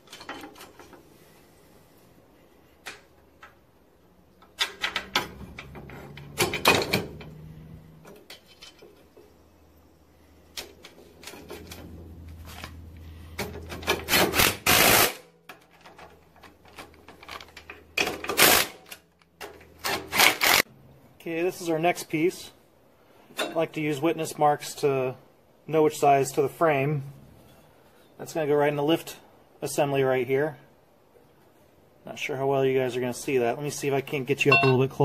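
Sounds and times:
bolts and metal parts clinking: 0:00.0 - 0:01.1, 0:04.3 - 0:09.4, 0:10.5 - 0:14.5, 0:34.4 - 0:35.0.

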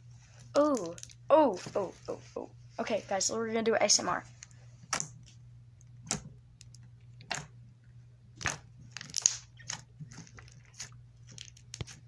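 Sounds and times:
faint steady hum: 0:00.0 - 0:12.0
slime crackling and popping: 0:08.4 - 0:12.0.

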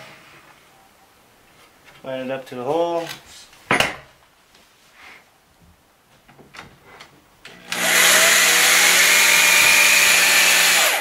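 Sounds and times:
electric drill driving screw: 0:07.5 - 0:11.0.

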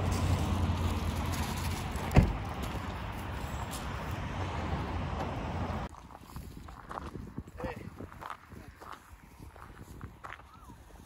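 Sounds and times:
truck door slamming: 0:02.1 - 0:02.4.

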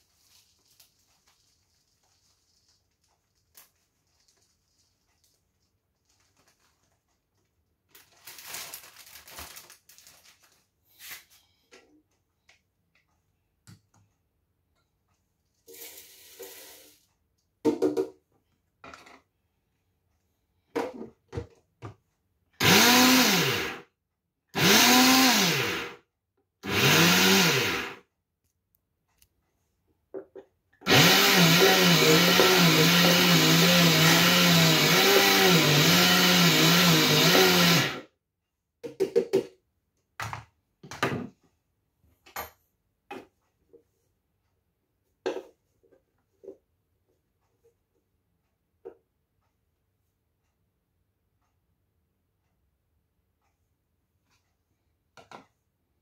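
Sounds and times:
oats pouring from a bag: 0:00.0 - 0:05.4, 0:08.0 - 0:10.6
blender grinding oats: 0:22.6 - 0:23.8, 0:24.6 - 0:26.0, 0:26.6 - 0:28.0, 0:30.8 - 0:38.1.

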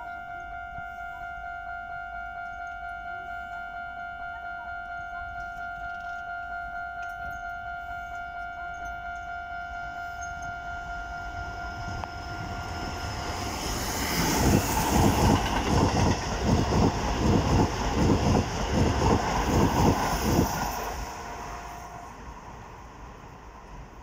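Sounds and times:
crossing warning bell: 0:00.0 - 0:24.0
train wheels clattering: 0:12.0 - 0:21.3.

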